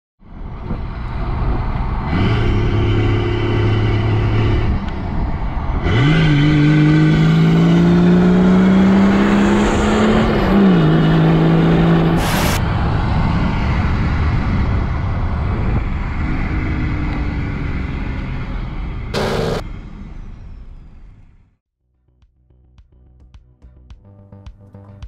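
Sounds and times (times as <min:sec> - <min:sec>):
diesel engine accelerating: 0:00.2 - 0:21.6
burst of static: 0:12.2 - 0:12.6, 0:19.2 - 0:19.6.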